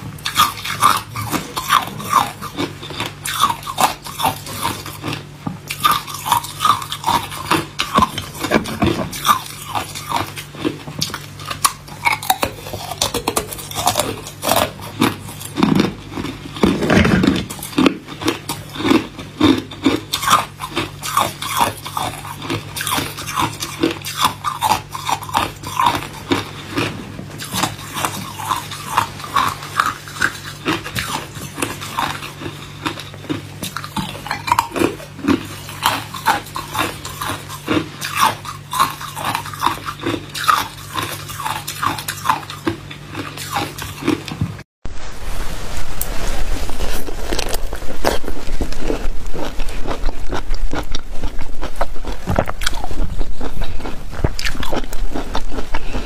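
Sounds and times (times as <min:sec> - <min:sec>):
ice cubes crunching: 0:47.0 - 0:56.0.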